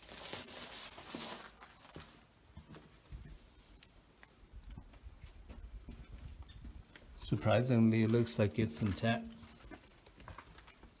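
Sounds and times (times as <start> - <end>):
handling rustle: 0.0 - 2.3.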